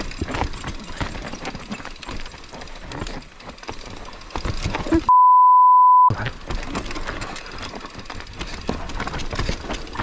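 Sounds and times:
mountain bike rattling on dirt trail: 0.0 - 5.1, 6.1 - 10.0
high censor bleep: 5.1 - 6.1.

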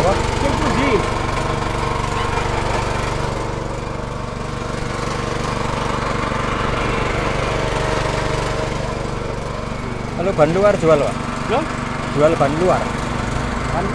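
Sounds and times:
small petrol engine running: 0.0 - 13.9.

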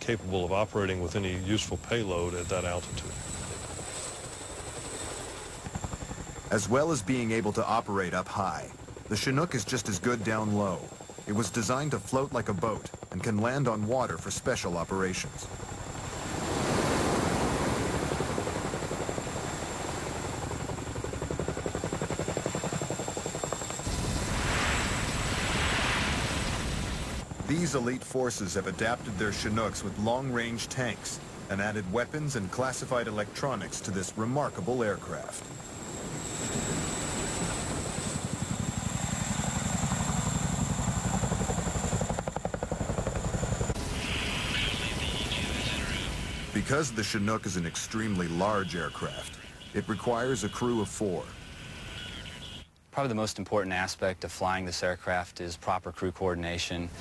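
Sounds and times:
helicopter rotors chopping: 0.0 - 52.6
rush of rotor-wash spray: 23.8 - 34.2.

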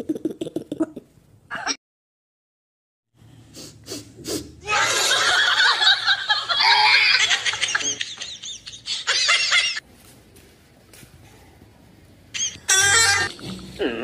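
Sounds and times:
loud laughter in bursts: 4.6 - 9.8.

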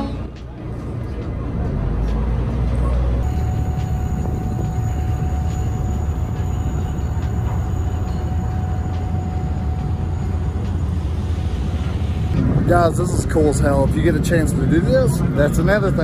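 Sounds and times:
ship engines rumbling: 0.0 - 16.0
faint steady whine: 3.2 - 16.0.

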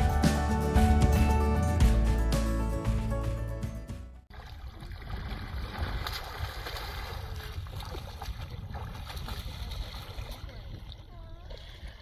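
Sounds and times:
water splashing and lapping: 4.2 - 12.0
wind rumbling on microphone: 4.7 - 12.0.

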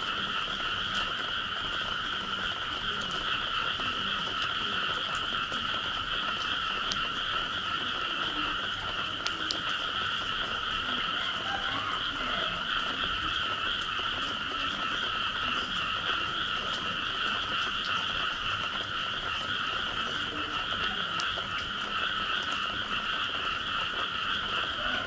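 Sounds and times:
chorus of frogs calling: 0.0 - 25.0
faint ticks: 7.8 - 10.4.

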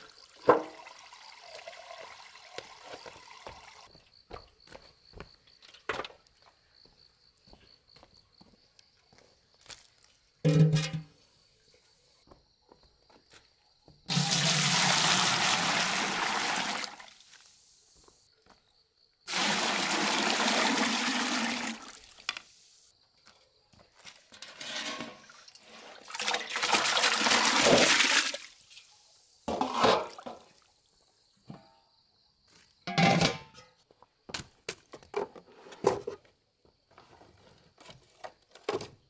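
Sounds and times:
water pouring and splashing: 0.0 - 3.9, 14.1 - 17.9, 19.3 - 22.7, 24.4 - 30.8.

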